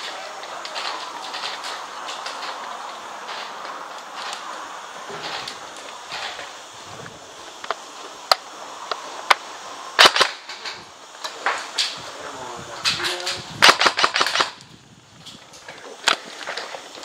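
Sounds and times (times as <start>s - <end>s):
airsoft guns firing: 10.0s - 10.6s, 13.2s - 14.6s.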